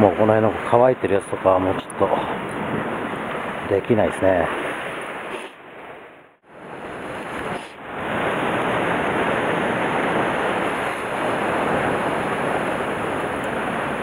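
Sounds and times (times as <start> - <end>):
surf breaking on rocks: 6.6 - 14.0.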